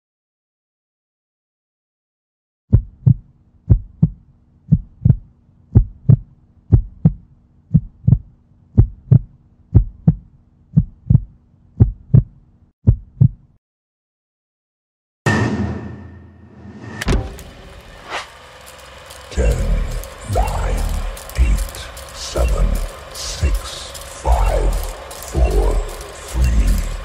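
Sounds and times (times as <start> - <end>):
heartbeat double thumps: 2.7 - 13.5
faint low hum: 17.1 - 27.0.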